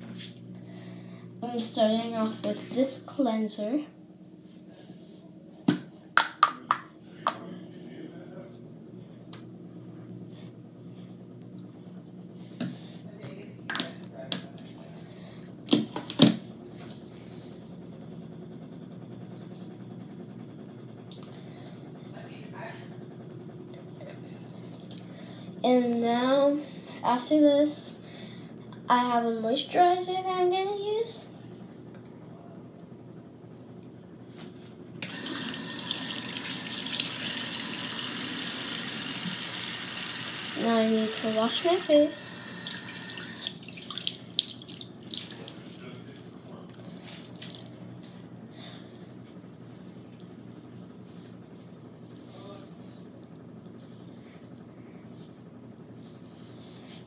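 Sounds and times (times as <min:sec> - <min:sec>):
steady low hum: 0:00.0 - 0:57.0
water running into basin: 0:35.0 - 0:46.3, 0:47.1 - 0:47.7.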